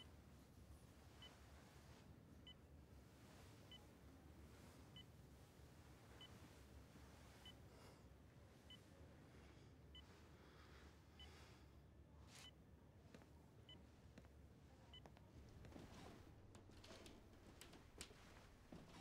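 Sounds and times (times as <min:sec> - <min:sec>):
low room hum: 0:00.0 - 0:19.0
patient monitor beeps: 0:14.9 - 0:19.0.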